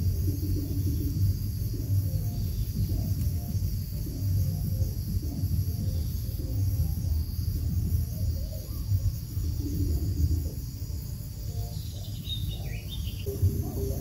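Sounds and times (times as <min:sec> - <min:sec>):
background music: 0:00.0 - 0:14.0
high insect drone: 0:00.0 - 0:14.0
quail chirping: 0:11.5 - 0:14.0.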